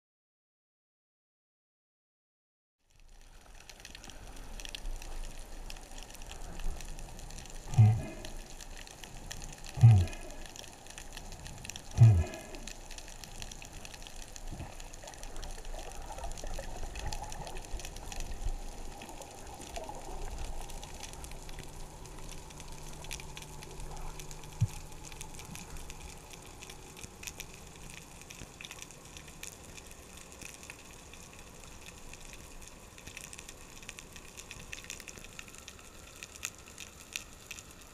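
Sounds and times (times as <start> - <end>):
faint steady hum: 2.9 - 37.9.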